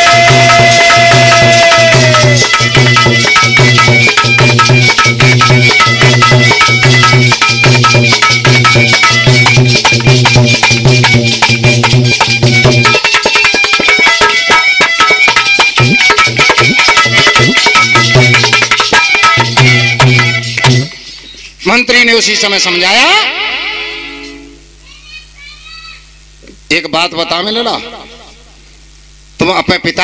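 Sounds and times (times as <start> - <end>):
dholak drum beat: 0.0 - 21.1
harmonium: 0.0 - 21.2
clicking percussion: 0.4 - 20.9.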